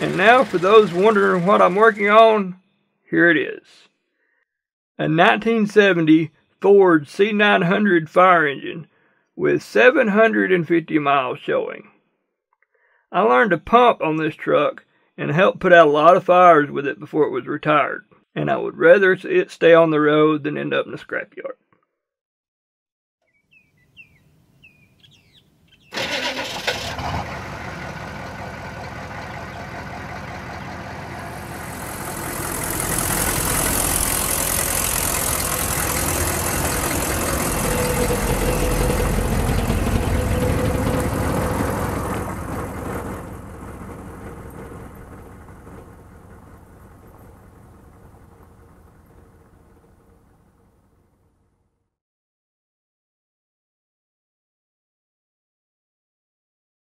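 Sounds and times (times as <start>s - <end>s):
truck engine starting and running: 0.0s - 2.5s, 25.9s - 51.0s.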